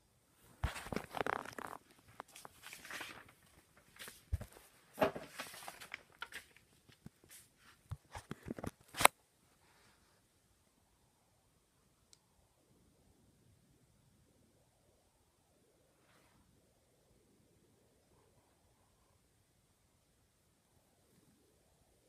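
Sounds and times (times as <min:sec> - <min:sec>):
handling rustles and scrapes: 0:00.4 - 0:10.2.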